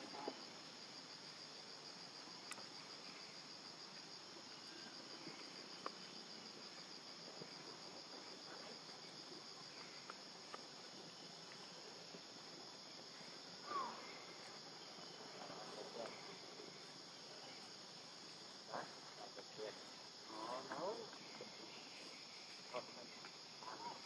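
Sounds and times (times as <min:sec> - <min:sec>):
insects trilling: 0:00.0 - 0:24.0
faint ticks: 0:02.4 - 0:02.7.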